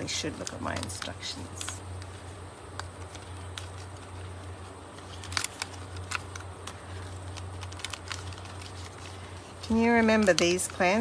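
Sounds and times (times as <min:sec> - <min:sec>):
paper rustling: 0:00.0 - 0:11.0
steady low hum: 0:00.0 - 0:11.0
cardstock pieces clicking and snapping: 0:00.1 - 0:02.1, 0:04.9 - 0:11.0.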